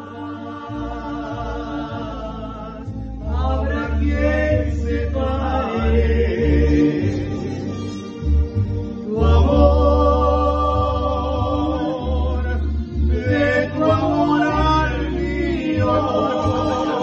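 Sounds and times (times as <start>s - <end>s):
instrumental accompaniment: 0.0s - 17.0s
woman and man singing duet: 9.1s - 17.0s.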